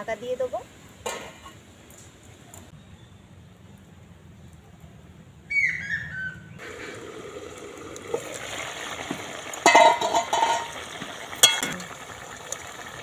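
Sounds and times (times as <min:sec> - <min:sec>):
high falling calls: 0:05.5 - 0:07.9
curry bubbling in wok: 0:06.6 - 0:13.0.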